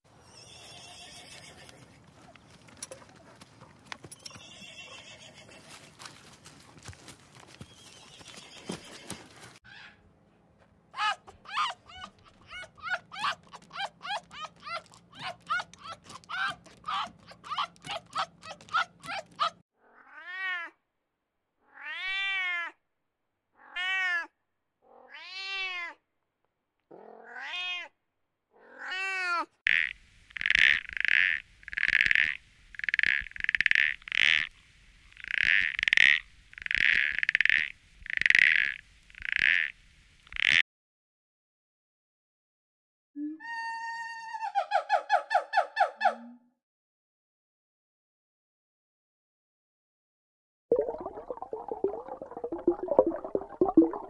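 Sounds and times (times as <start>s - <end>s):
foxes yipping: 9.7s - 10.0s, 11.0s - 19.6s
toad calling: 11.0s - 19.6s, 29.7s - 40.6s.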